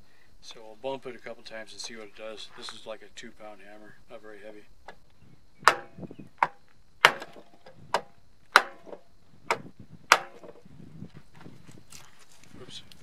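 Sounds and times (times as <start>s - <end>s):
hammer striking wood block: 5.6s - 10.5s.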